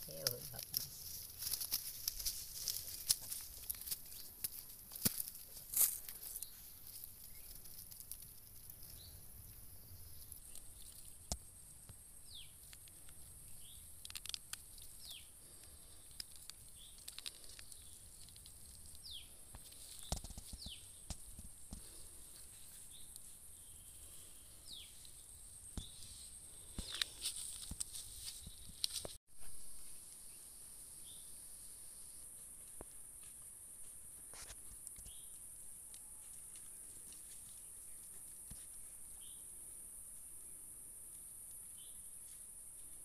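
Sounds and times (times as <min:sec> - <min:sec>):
hands tapping and rustling dry grass: 0:00.0 - 0:29.5, 0:32.6 - 0:39.0
bird chirping: 0:06.2 - 0:07.8, 0:08.6 - 0:18.3, 0:18.9 - 0:21.1.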